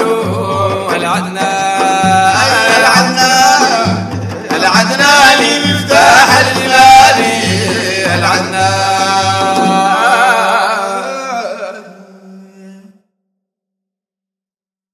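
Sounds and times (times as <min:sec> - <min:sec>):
steady drum beat: 0:00.0 - 0:10.7
voices singing praise song: 0:00.0 - 0:12.8.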